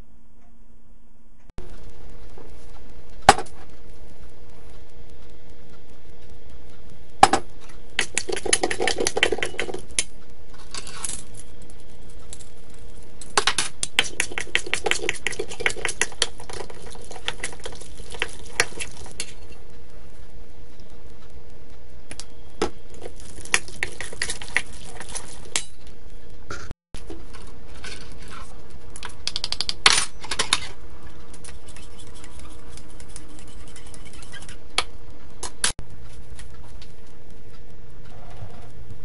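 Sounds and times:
metal spoon scraping in steel bowl: 0:31.5 - 0:34.6.

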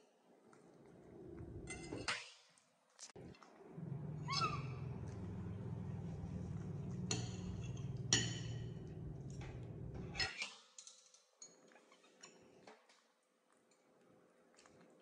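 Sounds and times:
steady low hum: 0:03.6 - 0:10.2
cutlery clinking on plates: 0:05.8 - 0:11.7.

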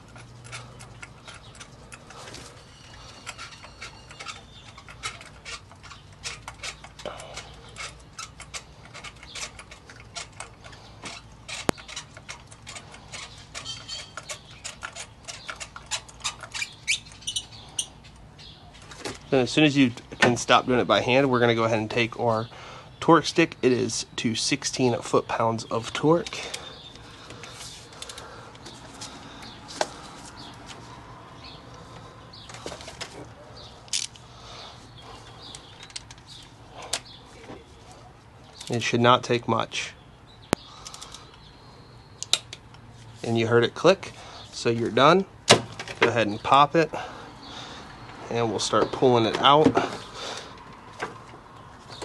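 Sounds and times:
metallic socket clicks: 0:42.2 - 0:42.8.

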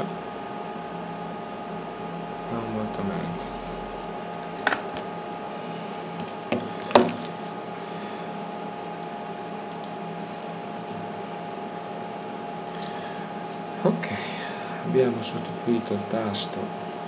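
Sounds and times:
electrical hum: 0:00.0 - 0:17.0
camera handling knocks: 0:06.5 - 0:07.3.

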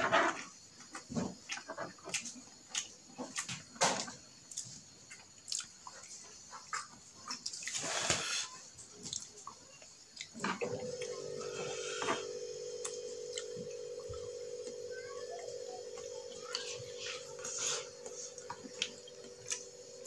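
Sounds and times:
chewing: 0:00.2 - 0:20.0
steady hum: 0:10.4 - 0:20.0
slurping soup: 0:16.6 - 0:19.4.

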